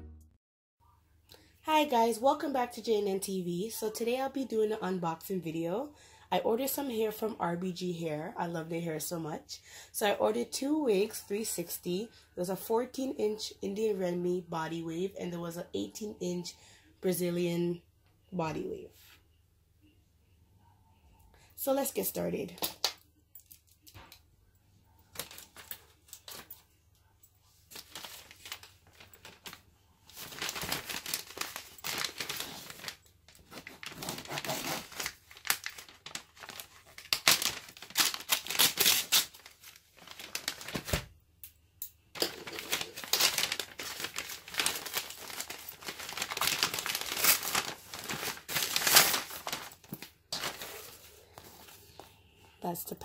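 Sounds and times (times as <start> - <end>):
plastic mailer bag crinkling and tearing: 25.1 - 26.6, 27.5 - 41.1, 42.2 - 51.7.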